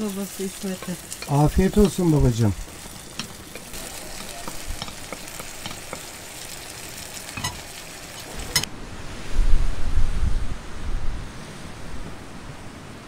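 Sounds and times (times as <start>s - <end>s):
eggs sizzling in a pan: 0.0s - 8.7s
wind rumble on microphone: 8.7s - 13.0s.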